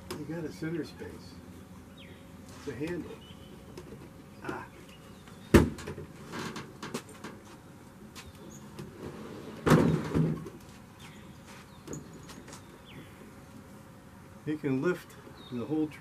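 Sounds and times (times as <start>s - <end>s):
tailgate and wooden box knocks: 5.5s - 6.1s, 9.6s - 10.6s.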